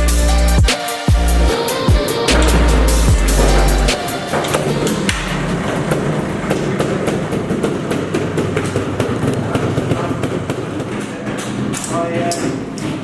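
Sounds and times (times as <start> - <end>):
sharp knocks: 1.5 - 11.9
motorcycle engine running: 4.7 - 11.3.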